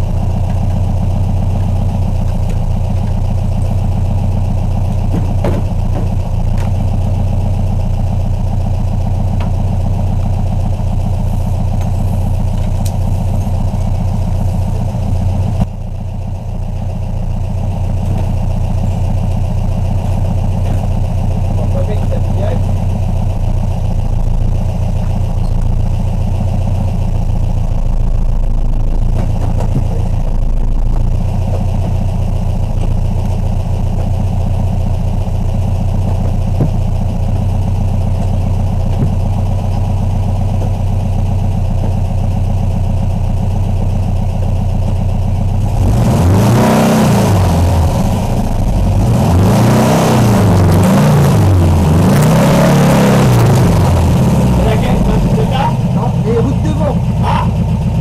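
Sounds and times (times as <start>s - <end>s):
car engine idling and revving: 0.0s - 58.0s.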